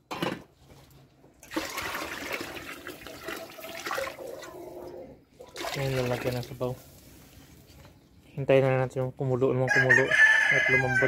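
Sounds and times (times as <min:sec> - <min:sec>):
broth pouring into pot: 0:01.5 - 0:04.8.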